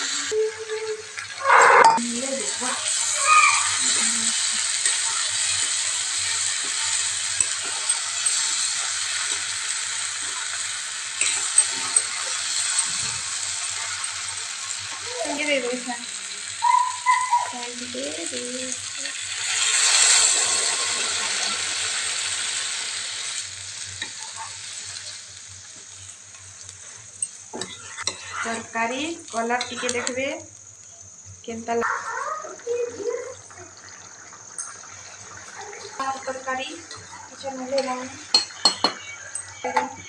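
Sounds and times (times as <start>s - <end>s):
vegetables sizzling in hot oil: 0.0s - 40.0s
metal spatula scraping pan: 1.4s - 2.0s, 27.6s - 28.7s.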